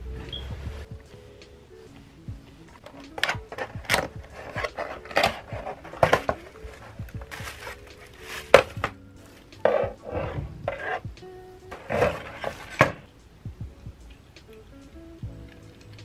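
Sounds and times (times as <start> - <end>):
plastic crinkling: 2.8 - 10.1.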